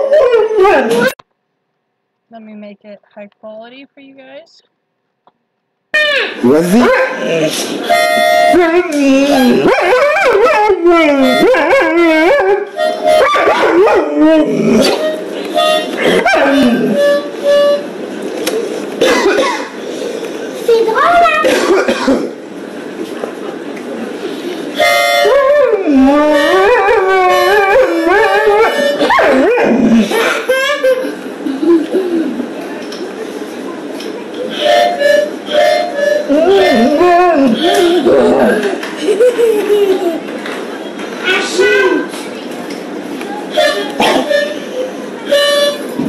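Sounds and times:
harmonica notes: 6.0 - 10.0, 10.8 - 18.8, 24.3 - 29.4, 30.0 - 32.4, 34.3 - 38.5, 43.3 - 46.0
dog howling: 6.4 - 7.6, 8.5 - 15.0, 16.0 - 17.0, 25.2 - 30.2, 36.3 - 38.8.

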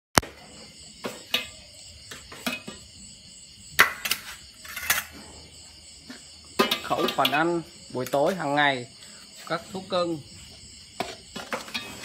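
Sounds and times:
insects chirring: 0.2 - 12.0
metal bowls and pot clinking: 1.0 - 2.9, 6.1 - 8.6, 11.0 - 12.0.

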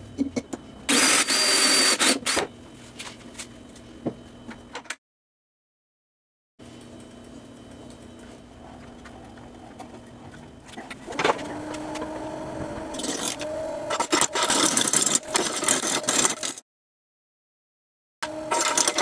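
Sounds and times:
wood lathe motor humming: 10.9 - 16.6, 18.2 - 19.0
gouge scraping wood: 12.9 - 16.6.

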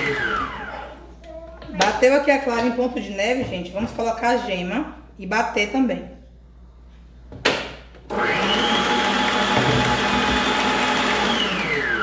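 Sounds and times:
stand mixer motor whining: 0.0 - 0.7, 8.1 - 12.0.

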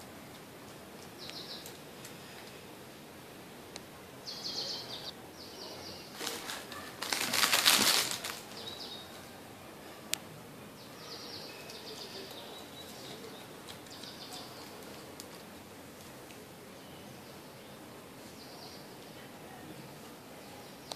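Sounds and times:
birds chirping: 1.1 - 2.4, 4.2 - 7.2, 8.1 - 10.0, 10.6 - 15.6, 16.6 - 19.4
curtain fabric rustling: 6.2 - 8.6.

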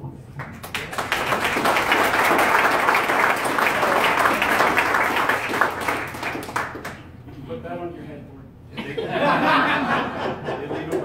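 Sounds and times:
audience applauding: 0.4 - 7.2.

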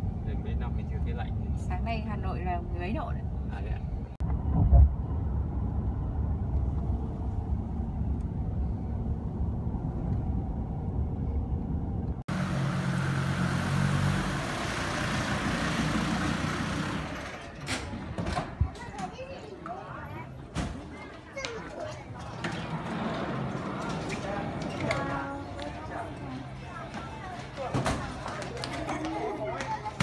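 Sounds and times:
vehicle engine running: 12.3 - 17.4.

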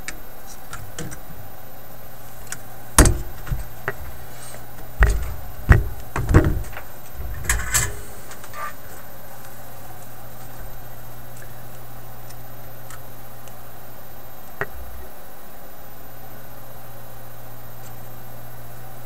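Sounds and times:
low steady hum: 0.0 - 19.0
tools knocking on wooden workbench: 5.0 - 6.8.

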